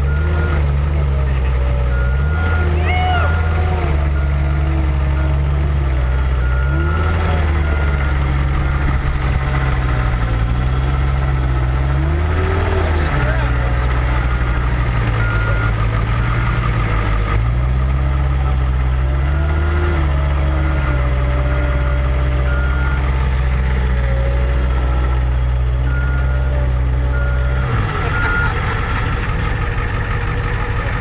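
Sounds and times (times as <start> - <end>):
diesel engine running: 0.0 - 31.0.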